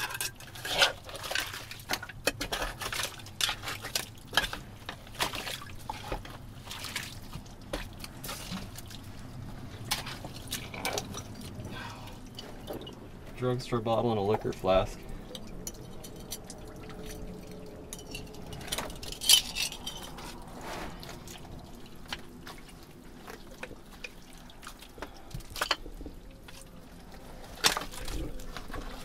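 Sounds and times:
glass bottles clinking: 0:00.0 - 0:04.6, 0:09.9 - 0:13.4, 0:15.3 - 0:20.5, 0:25.4 - 0:26.5
water dripping: 0:03.0 - 0:19.2, 0:19.8 - 0:29.0.

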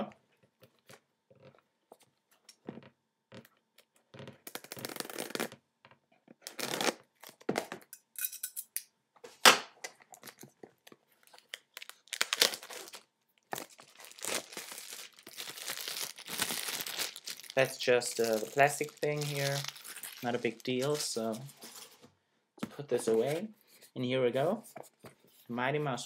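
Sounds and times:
plastic wrapping tearing: 0:04.4 - 0:05.6, 0:06.4 - 0:07.4, 0:11.2 - 0:22.0
sharp plastic crackle: 0:11.2 - 0:21.5.

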